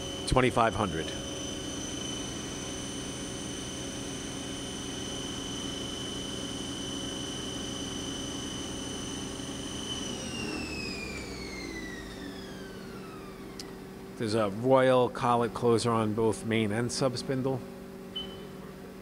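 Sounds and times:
lathe spindle whine: 0.0s - 13.9s
low machine hum: 0.0s - 19.0s.

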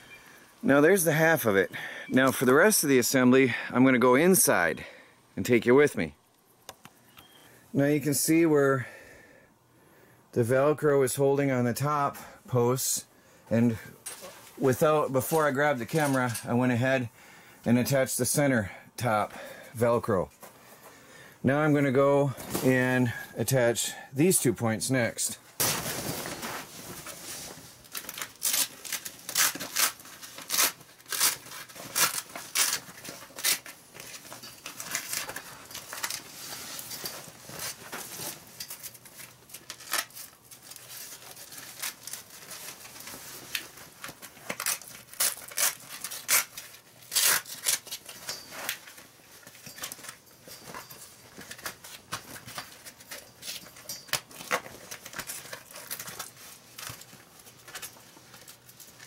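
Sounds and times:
velcro straps ripping: 27.8s - 49.0s.

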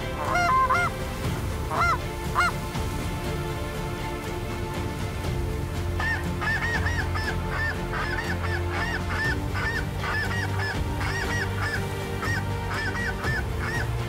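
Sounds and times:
geese honking in flight: 0.0s - 1.0s, 1.6s - 2.6s, 6.0s - 14.0s.

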